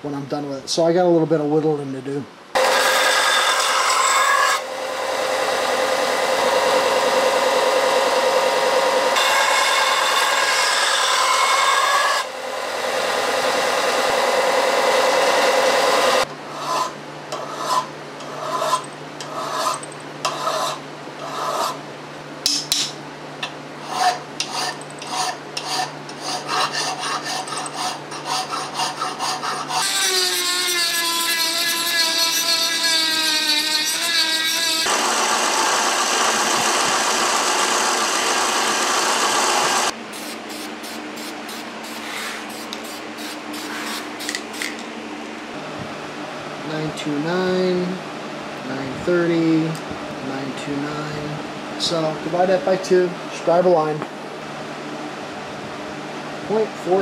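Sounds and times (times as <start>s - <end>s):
belt grinder grinding steel: 9.2s - 12.3s, 23.9s - 39.9s
hand-filing strokes: 16.5s - 21.8s, 23.8s - 34.9s
sanding drum grinding hiss: 37.1s - 44.8s.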